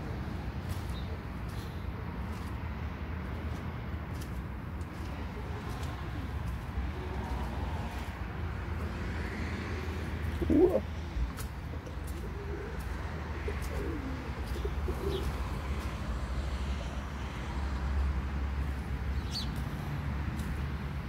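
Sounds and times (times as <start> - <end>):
bird cooing: 10.2 - 10.9, 11.8 - 15.5.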